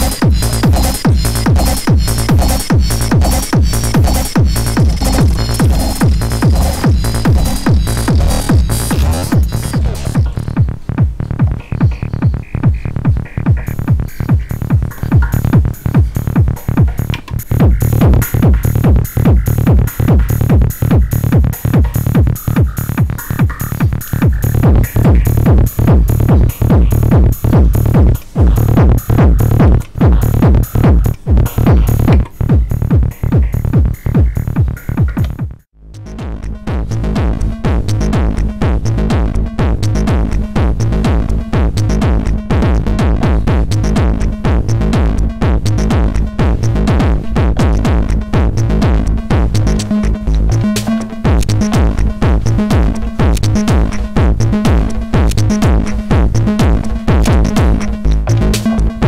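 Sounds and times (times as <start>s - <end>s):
bright hi-hats: 0.0s - 35.4s
pulsing bass line: 0.0s - 59.0s
techno drum machine beat: 0.0s - 59.0s.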